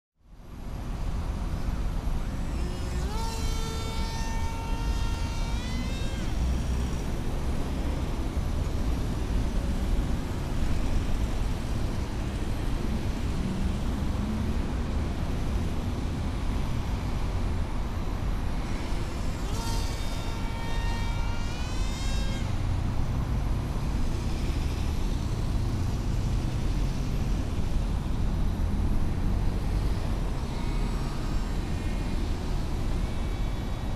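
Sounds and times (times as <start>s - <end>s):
wind rumble on microphone: 0.3s - 33.9s
model plane motor whine passing: 1.8s - 12.8s, 18.6s - 28.2s.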